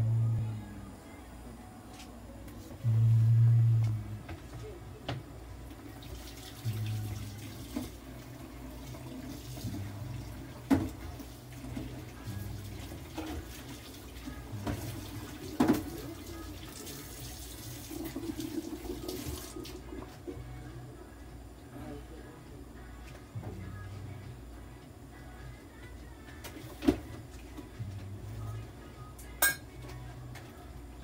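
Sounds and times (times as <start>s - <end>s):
low hum: 0.0s - 5.9s
water running from tap: 5.8s - 20.1s.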